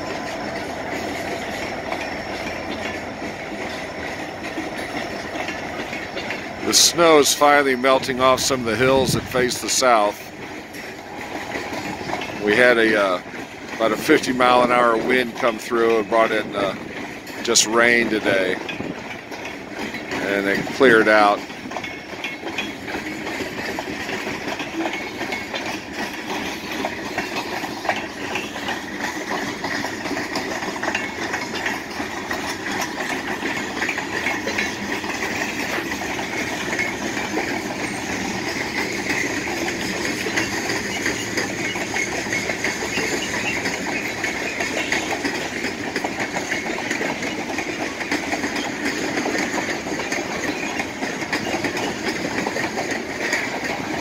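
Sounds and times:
train wheels clattering on rails: 0:00.0 - 0:54.0.

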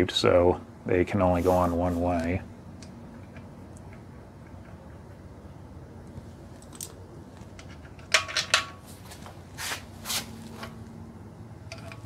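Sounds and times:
soft scraping handling sounds: 0:01.2 - 0:02.4, 0:08.8 - 0:10.9.

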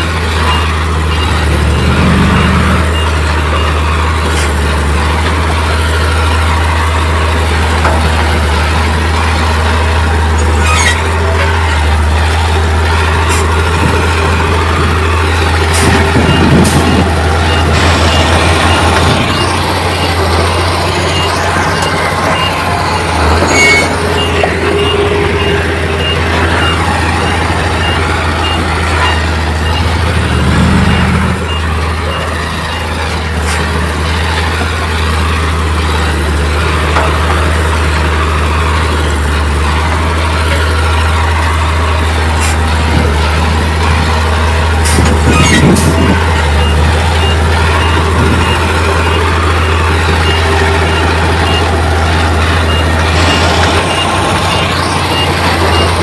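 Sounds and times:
reversing alarm beeping: 0:00.0 - 0:11.9, 0:12.5 - 0:56.0
heavy diesel machinery running: 0:00.0 - 0:56.0.

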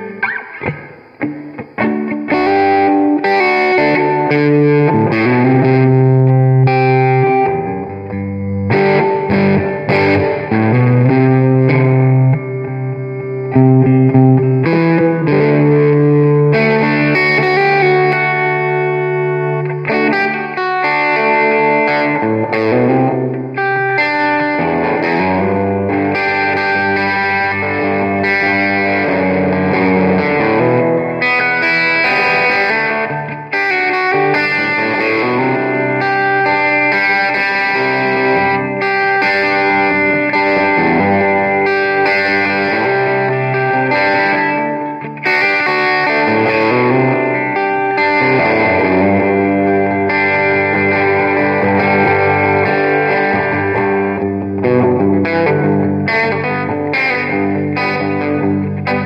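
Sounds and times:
electric guitar with effects: 0:00.0 - 0:59.0.

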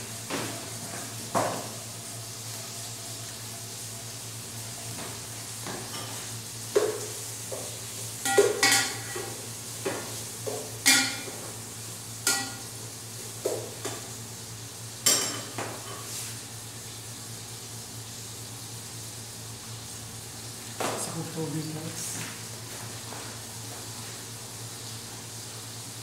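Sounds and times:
faint sizzle of frying: 0:00.0 - 0:26.0
metal spoon clanking in pot: 0:12.3 - 0:12.6.

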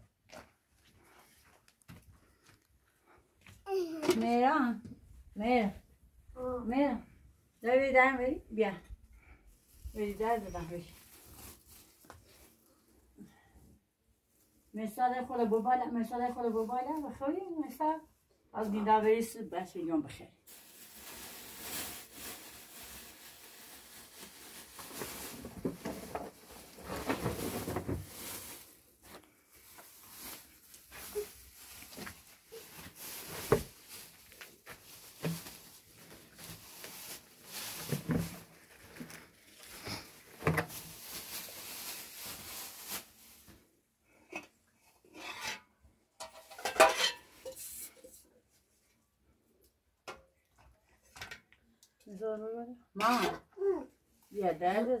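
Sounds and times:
metal dishes rustling and knocking: 0:45.3 - 0:47.6.

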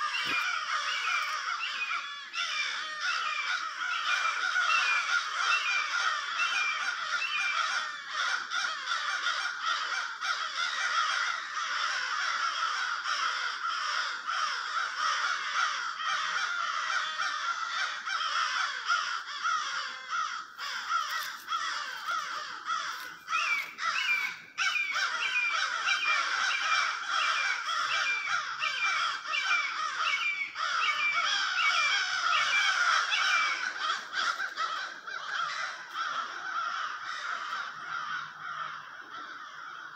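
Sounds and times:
quick repeated higher bird calls: 0:00.0 - 0:07.8, 0:20.2 - 0:36.2
crows cawing: 0:00.0 - 0:39.9.

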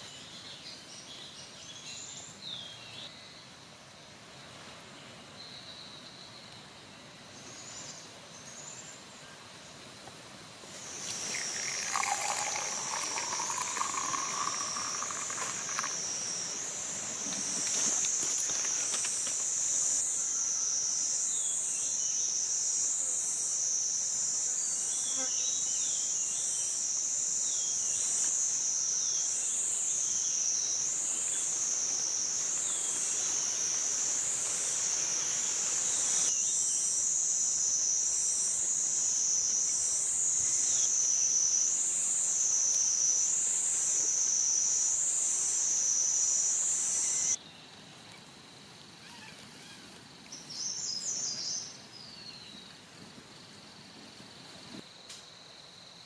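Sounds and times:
high insect drone: 0:10.6 - 0:47.4.

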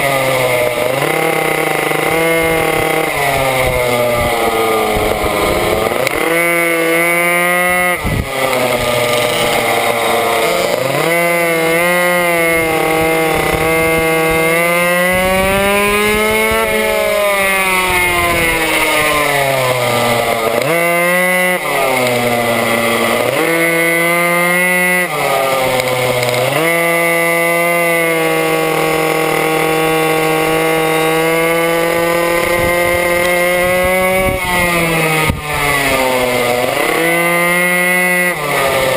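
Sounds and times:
small two-stroke engine revving: 0:00.0 - 0:38.9.

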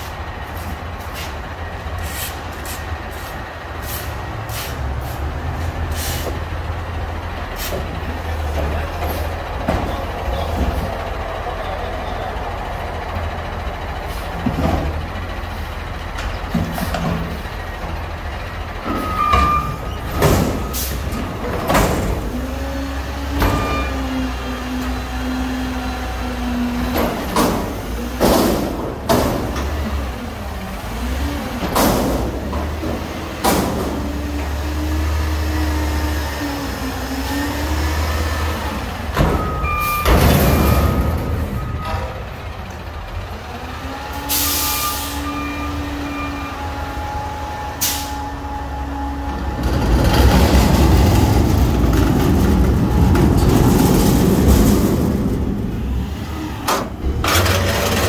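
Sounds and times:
diesel engine droning: 0:00.0 - 0:58.0
metal clanks and bangs: 0:18.7 - 0:22.6, 0:26.8 - 0:30.0, 0:31.6 - 0:34.3, 0:39.0 - 0:42.9, 0:49.6 - 0:58.0.

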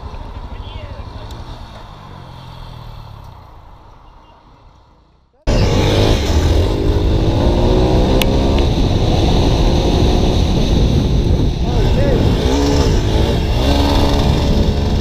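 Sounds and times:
motorcycle engine: 0:00.0 - 0:15.0
dirt bike engine revving: 0:05.5 - 0:15.0
wind buffeting microphone: 0:05.8 - 0:15.0.

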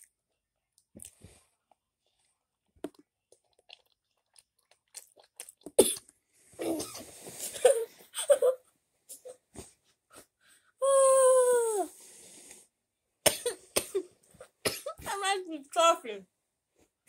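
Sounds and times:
boy coughing: 0:06.6 - 0:09.4, 0:13.3 - 0:14.1, 0:14.7 - 0:15.2.

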